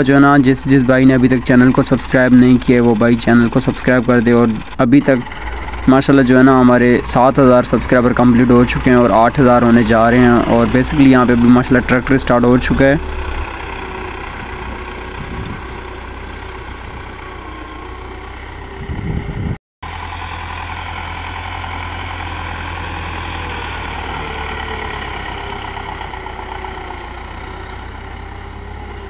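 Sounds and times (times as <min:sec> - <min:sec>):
tractor diesel engine running: 0:00.0 - 0:29.0.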